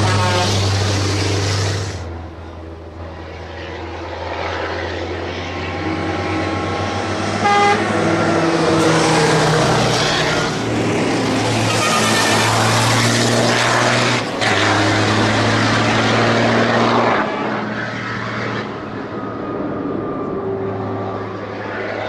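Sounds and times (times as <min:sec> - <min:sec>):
truck horn toot: 0:00.0 - 0:00.8, 0:07.4 - 0:08.1, 0:11.6 - 0:12.7
truck diesel engines: 0:00.0 - 0:22.0.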